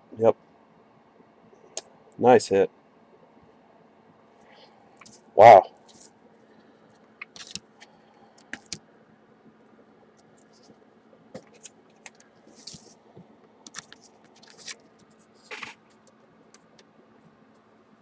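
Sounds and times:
trading card clicks and scrapes: 7.2 - 7.7, 8.4 - 8.8, 11.4 - 13.0, 13.7 - 15.8.

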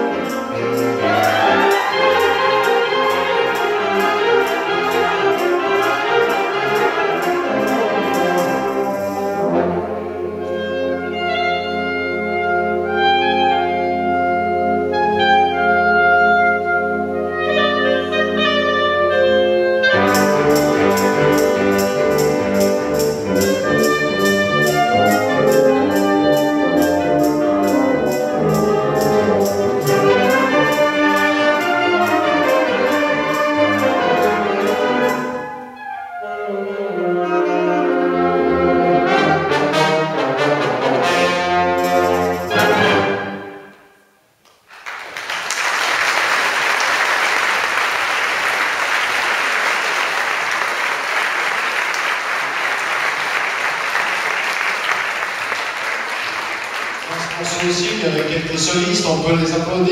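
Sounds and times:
wind band playing: 0.0 - 44.0, 45.5 - 59.9
audience applause: 0.9 - 7.0, 44.6 - 58.6.

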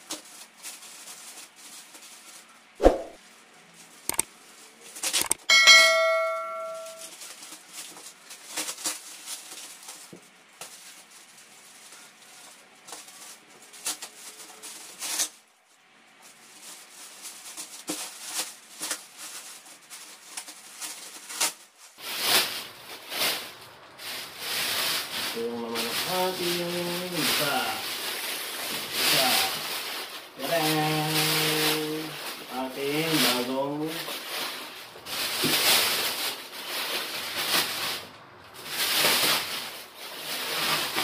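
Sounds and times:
plastic bag rustling: 0.0 - 41.0
short bell-like chime: 5.5 - 7.0.

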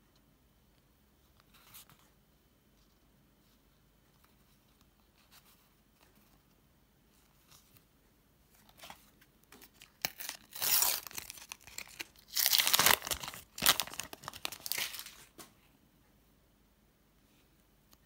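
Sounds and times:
wrapper tearing and crinkling: 9.6 - 15.3.

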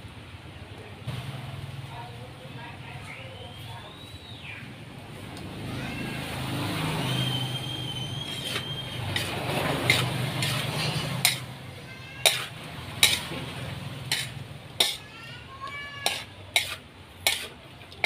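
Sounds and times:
spatula scraping a wok: 6.8 - 18.0
metal clanking on pan: 8.4 - 15.1, 15.7 - 18.0.

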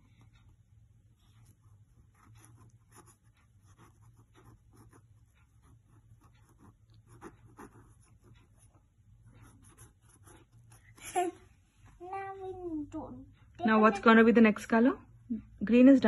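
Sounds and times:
paintbrush scratching on cardboard: 1.1 - 11.4.

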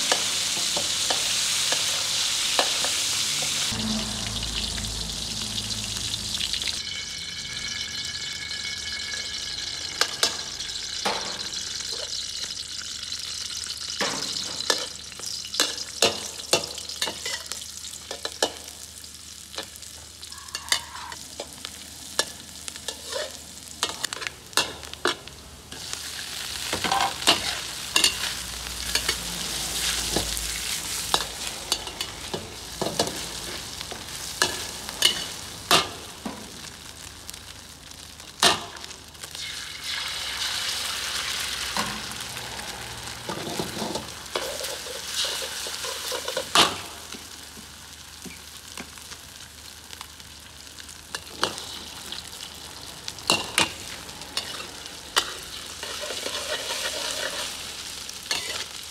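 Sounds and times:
fish and eggs sizzling in a wok: 0.0 - 58.9
metal spatula scraping: 20.4 - 21.2, 22.9 - 24.7, 43.3 - 46.6, 54.4 - 58.8.

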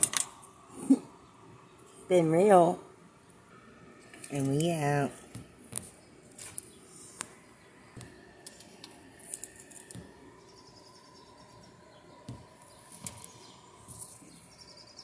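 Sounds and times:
bird chirps: 10.3 - 15.0.

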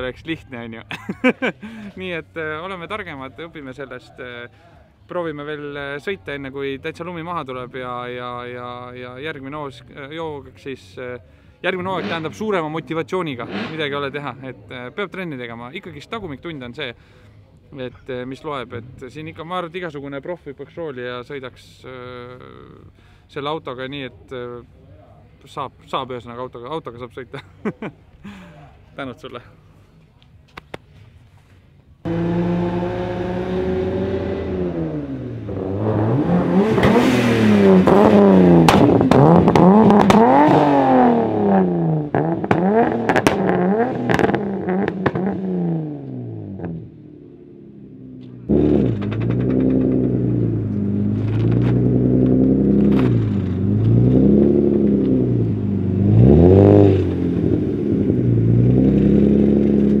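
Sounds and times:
car engines revving: 11.7 - 14.7, 32.0 - 60.0
exhaust pops: 36.6 - 40.7, 41.6 - 45.4, 48.1 - 60.0.

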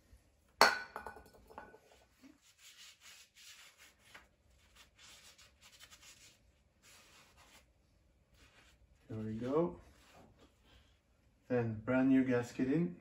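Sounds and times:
cloth rubbing on metal: 1.8 - 11.4.

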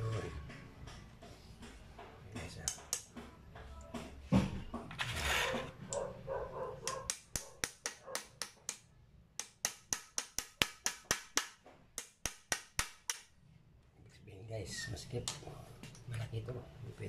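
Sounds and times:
hammer tapping metal: 0.0 - 3.3, 6.8 - 13.4.

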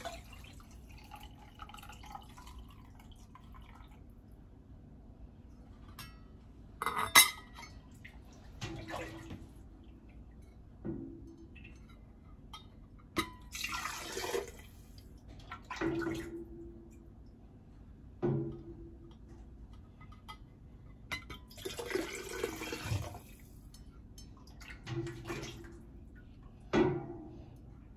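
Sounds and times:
broth pouring into a jar: 0.0 - 4.0.

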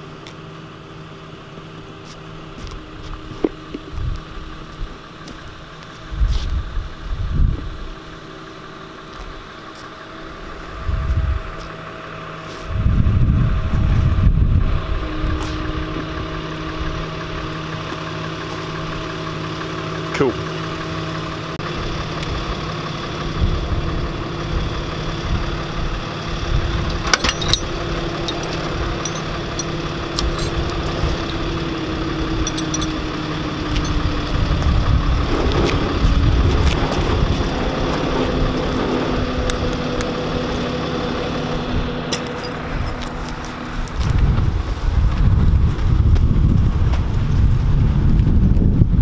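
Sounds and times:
truck engine idling: 0.0 - 48.9
sharp metallic clicks: 26.9 - 31.6, 32.4 - 33.1.

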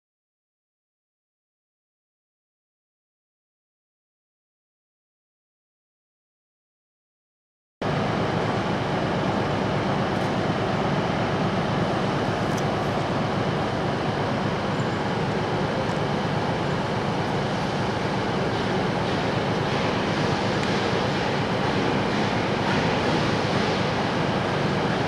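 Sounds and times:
trains rumbling in a station: 7.8 - 25.0.

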